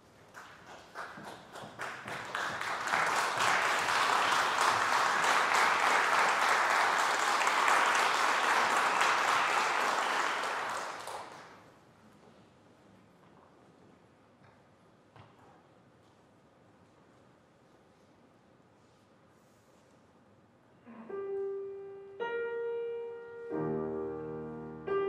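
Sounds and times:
audience applause: 0:00.4 - 0:11.6.

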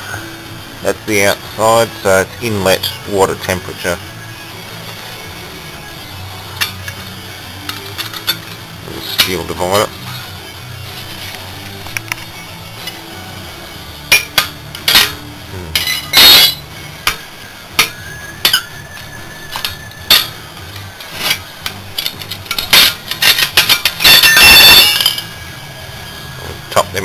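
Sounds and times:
tool scraping metal: 0:21.0 - 0:25.3.

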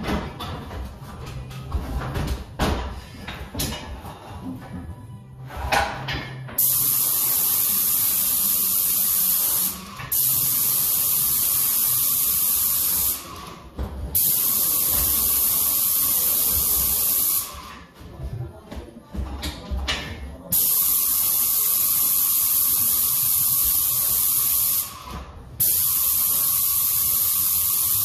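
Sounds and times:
paint sprayer hissing: 0:06.6 - 0:13.5, 0:14.2 - 0:17.7, 0:20.5 - 0:28.0.

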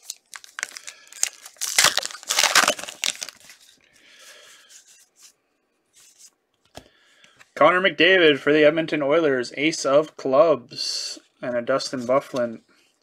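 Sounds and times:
wrapper tearing and crinkling: 0:00.0 - 0:03.8
cards rustling: 0:00.0 - 0:05.3.

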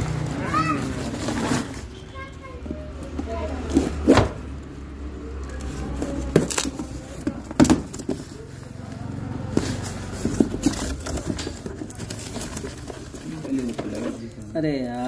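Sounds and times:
sealing tape tearing: 0:05.4 - 0:07.2
cardboard knocks and rustles: 0:06.0 - 0:08.4, 0:09.5 - 0:14.2.

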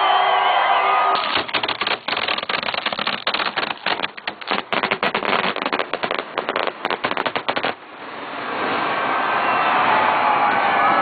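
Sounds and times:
fireworks bangs and cracks: 0:01.2 - 0:07.8.

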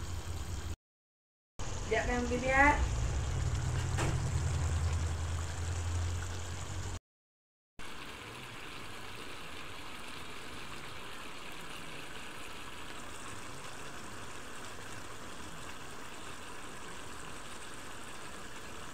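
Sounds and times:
low hum: 0:01.6 - 0:07.0
sauce bubbling in a pan: 0:02.8 - 0:07.0, 0:07.8 - 0:18.9.

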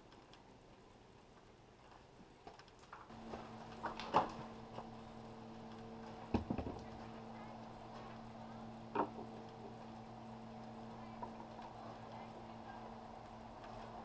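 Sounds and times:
steady low hum: 0:03.1 - 0:14.0.

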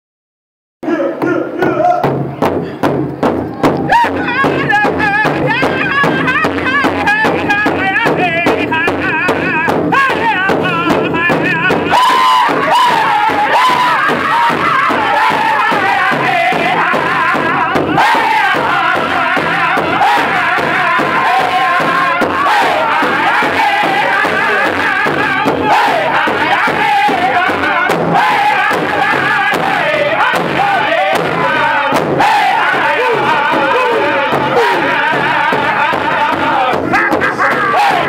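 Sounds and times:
large drum beating: 0:01.2 - 0:38.0
group singing in high voices: 0:03.7 - 0:38.0.

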